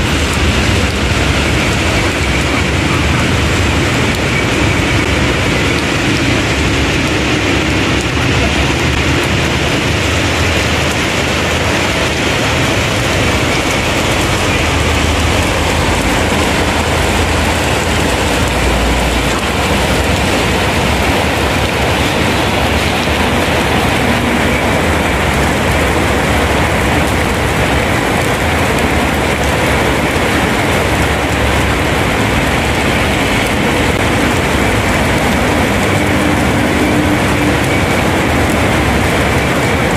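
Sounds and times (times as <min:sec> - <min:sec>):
heavy rain on pavement: 0:00.0 - 0:39.9
low traffic rumble: 0:00.0 - 0:39.9.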